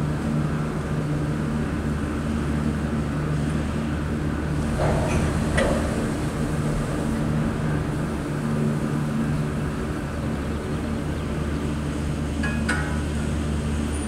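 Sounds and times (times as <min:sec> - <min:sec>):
lift machinery humming: 0:00.4 - 0:14.0
short metal clanks: 0:04.6 - 0:06.6.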